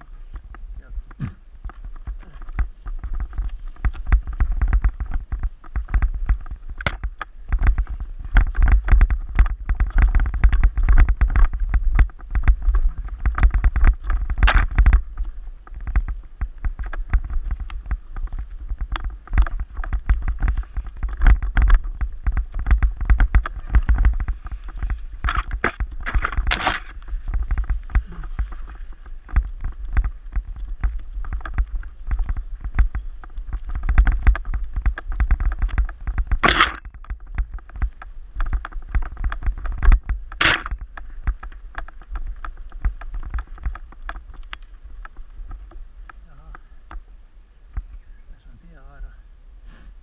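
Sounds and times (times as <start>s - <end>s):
bike clattering over bumps: 1.1s - 47.0s.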